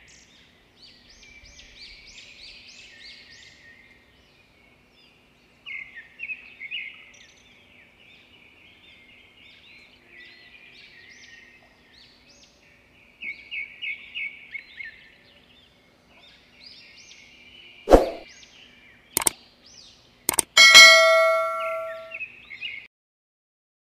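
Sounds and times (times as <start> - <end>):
sharp thump: 17.9 - 18.2.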